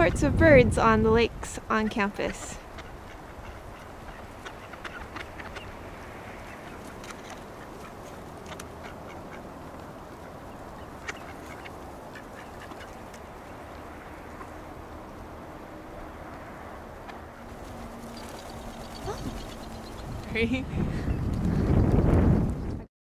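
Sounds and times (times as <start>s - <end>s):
ducks quacking: 1.7s - 14.7s, 17.0s - 20.4s.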